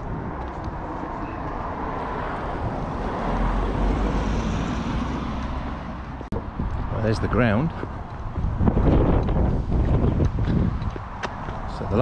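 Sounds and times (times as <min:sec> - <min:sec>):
road traffic passing: 0:00.0 - 0:12.0.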